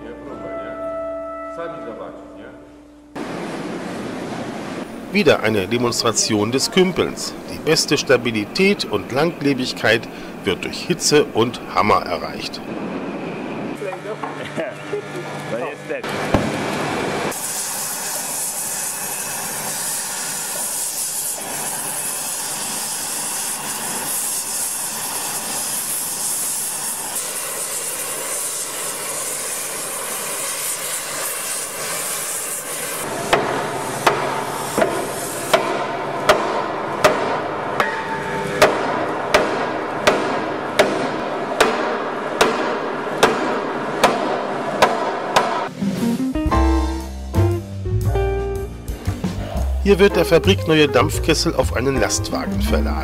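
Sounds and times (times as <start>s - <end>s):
gas torches hissing: 16.1s - 37.8s.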